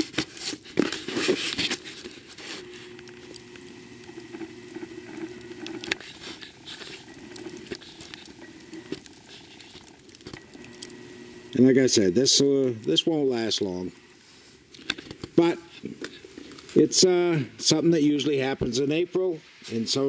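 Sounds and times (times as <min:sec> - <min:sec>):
handheld camera rustling: 0:00.0 - 0:11.0
faint steady hum: 0:00.1 - 0:20.0.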